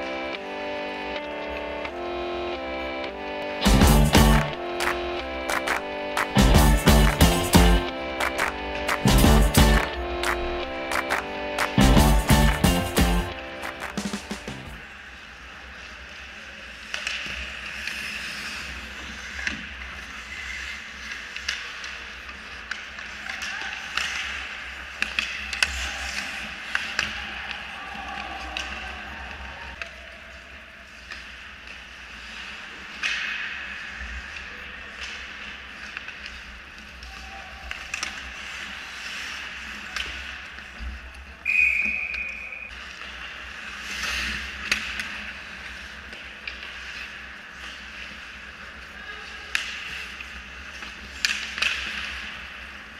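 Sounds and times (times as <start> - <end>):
hockey sticks and puck clacking: 3.9 - 14.6, 15.2 - 52.9
skates scraping on ice: 3.9 - 29.2, 41.7 - 52.9
referee's whistle blast: 41.4 - 42.7.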